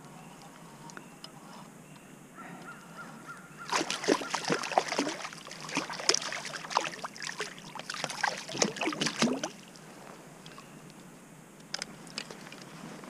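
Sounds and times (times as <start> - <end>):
fish splashing at the surface: 3.7 - 9.6.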